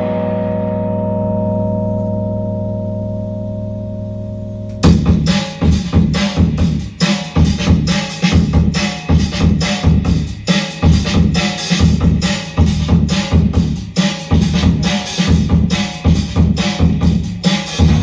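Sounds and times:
electronic drone chord: 0.0s - 12.6s
noisy electronic beat with bass: 4.3s - 18.0s.

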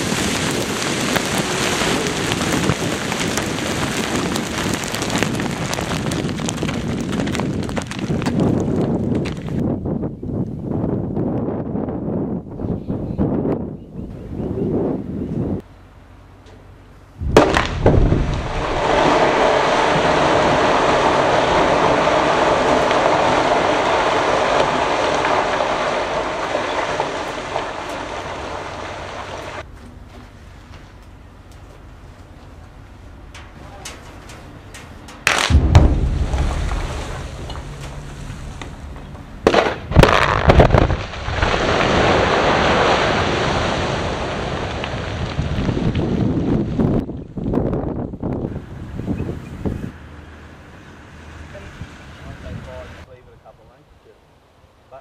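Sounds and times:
rumble of sliding rock: 0.0s - 10.4s, 17.2s - 31.2s, 31.8s - 50.0s
quarry blast bangs: 17.2s - 25.6s, 35.3s - 42.6s
explosive detonations: 17.2s - 29.6s, 35.2s - 47.0s.

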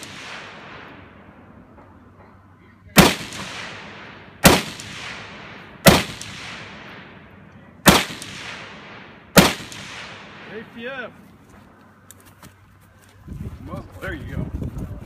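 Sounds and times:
rifle shots with echo: 0.0s - 1.6s, 2.9s - 11.0s.

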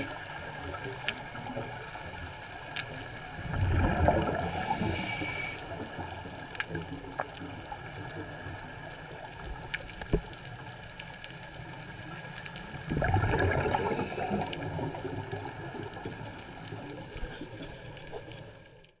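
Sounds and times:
underwater background: 0.0s - 19.0s
diver's breath bubbling: 3.4s - 5.6s, 12.9s - 15.5s.

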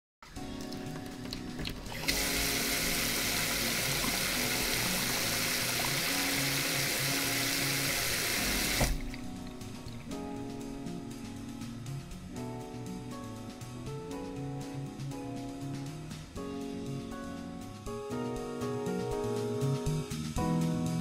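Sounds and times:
tap water running into sink: 0.6s - 10.3s.

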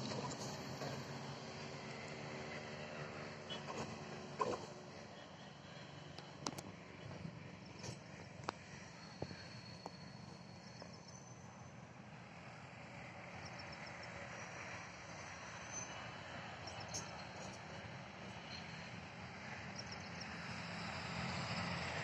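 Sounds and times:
distant train approaching: 0.0s - 22.0s.

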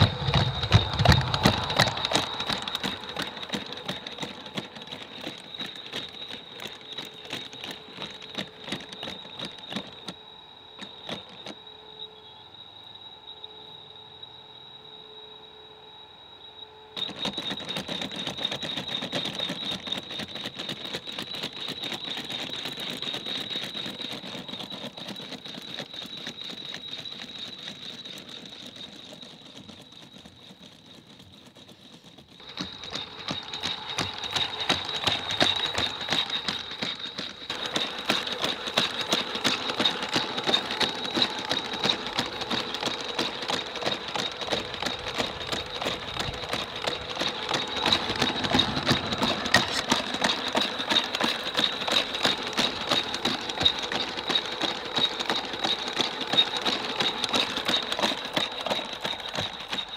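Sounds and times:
fast dense clicking: 0.0s - 10.2s, 17.0s - 59.9s
robot motors whining: 0.0s - 12.4s, 32.3s - 59.9s.

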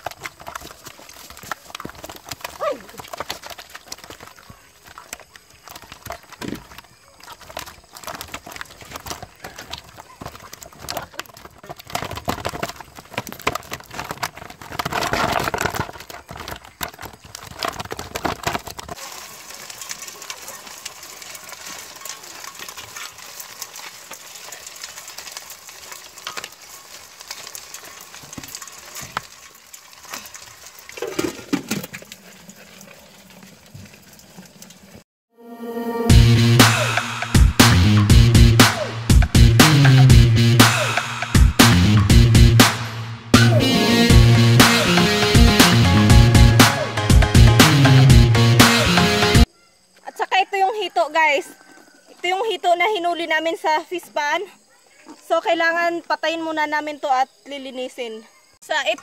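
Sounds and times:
fish slapping in a plastic basin: 0.0s - 35.0s.

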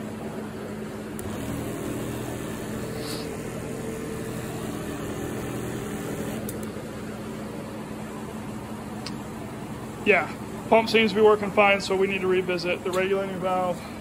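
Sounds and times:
electric sprayer pump humming: 0.9s - 7.6s.

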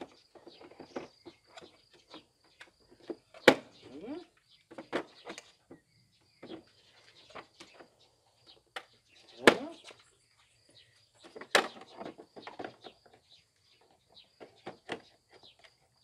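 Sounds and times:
plastic parts clacking and knocking: 0.0s - 3.8s, 4.6s - 7.9s, 11.2s - 16.0s.

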